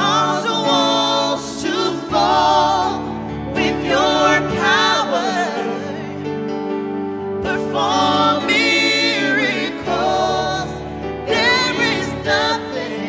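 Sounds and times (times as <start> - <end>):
sustained musical accompaniment: 0.0 - 13.0
backing singers: 7.4 - 13.0.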